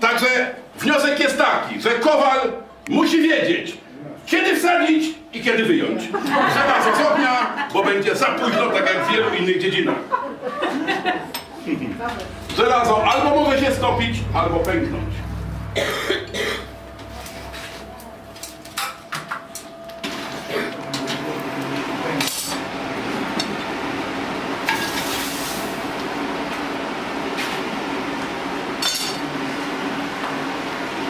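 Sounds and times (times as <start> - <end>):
forge rushing noise: 11.4 - 19.1.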